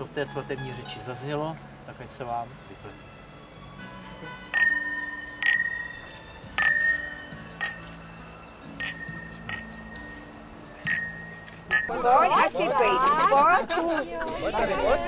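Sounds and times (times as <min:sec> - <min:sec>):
glasses clinking: 0:04.5 - 0:12.1.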